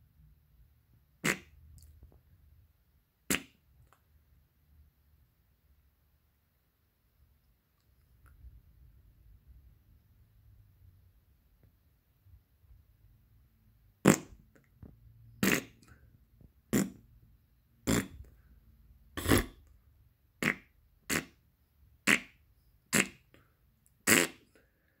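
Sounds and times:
short fart sounds: 1.2s - 1.6s, 3.3s - 3.6s, 14.0s - 14.4s, 15.4s - 15.8s, 17.9s - 18.2s, 19.2s - 19.6s, 20.4s - 21.4s, 22.0s - 23.2s, 24.0s - 24.5s.

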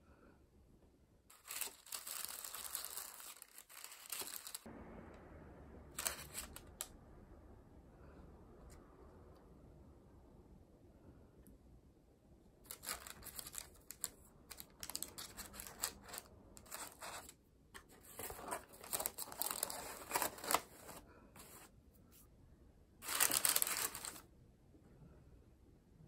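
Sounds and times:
baking paper crinkling: 1.3s - 4.7s, 6.0s - 6.8s, 12.7s - 21.7s, 23.0s - 24.2s.

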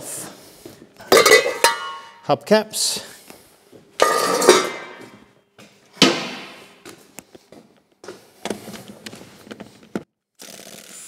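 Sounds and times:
metal clanks ringing: 1.1s - 2.2s.

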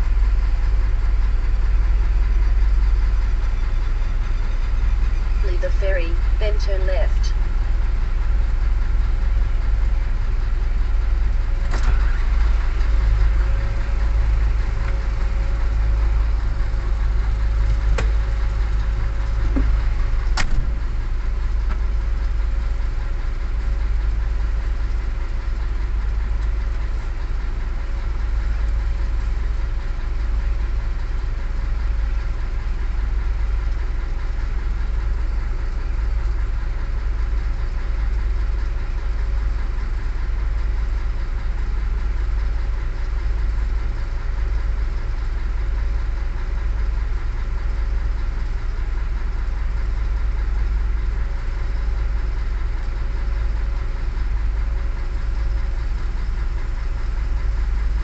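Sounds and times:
car engine rumble: 0.0s - 58.0s
faint steady hum: 5.3s - 7.4s.

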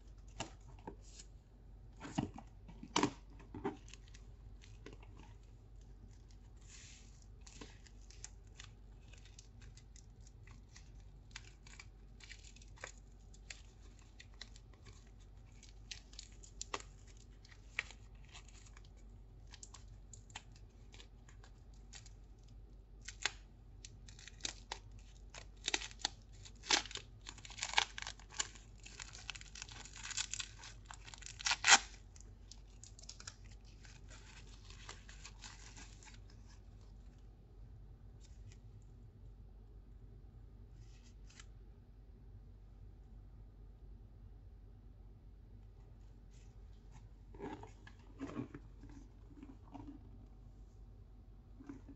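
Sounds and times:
wrapping paper crinkling and tearing: 3.8s - 36.9s.

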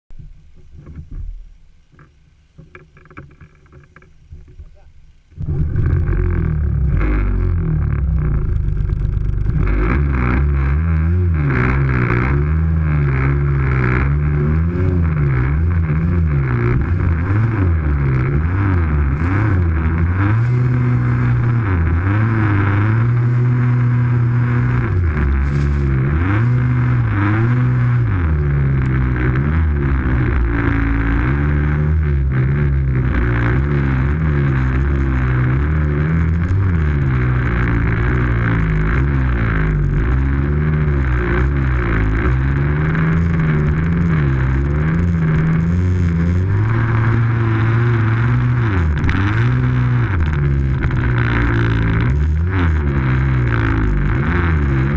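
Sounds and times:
snowmobile engine revving: 5.4s - 54.9s.

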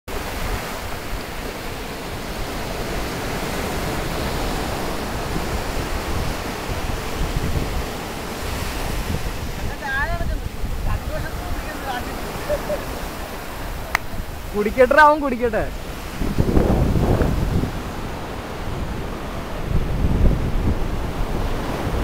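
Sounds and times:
waves breaking on beach: 0.1s - 22.0s
gusty low rumble: 16.1s - 21.3s.

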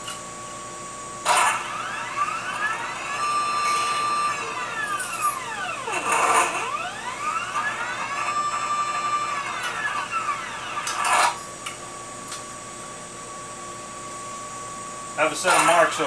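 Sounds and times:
drive motor whining: 1.1s - 11.8s.

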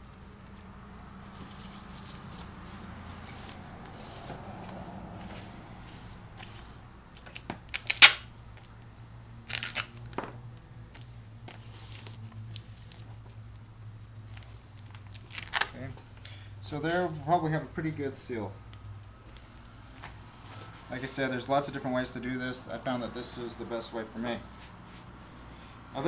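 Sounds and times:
plastic film crinkling: 7.1s - 8.8s, 9.4s - 10.3s, 11.0s - 15.9s.

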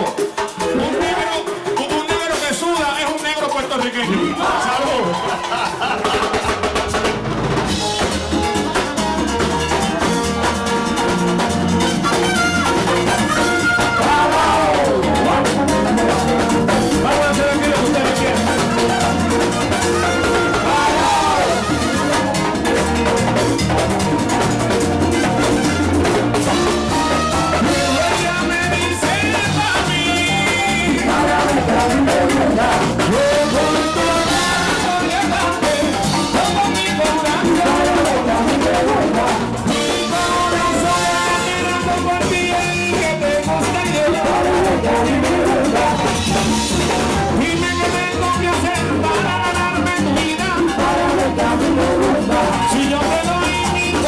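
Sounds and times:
congas: 0.0s - 54.0s
drum kit: 0.0s - 54.0s
frame drums: 0.0s - 54.0s
voices singing: 4.1s - 6.6s, 11.7s - 23.4s, 26.6s - 54.0s
horns playing: 10.0s - 24.0s, 24.8s - 35.8s, 39.2s - 46.0s.

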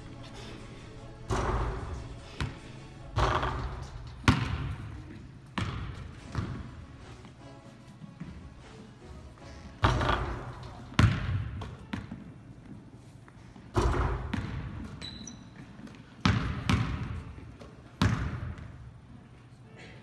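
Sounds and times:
basketball bouncing on hardwood floor: 3.2s - 4.9s, 5.6s - 6.7s, 9.8s - 12.2s, 13.7s - 15.2s, 15.9s - 17.2s, 18.0s - 18.7s.

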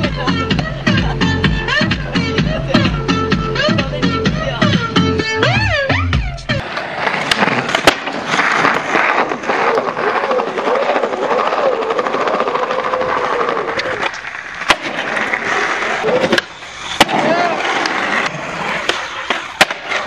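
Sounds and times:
skateboard wheels rolling on pavement: 0.0s - 5.4s, 6.5s - 20.0s.

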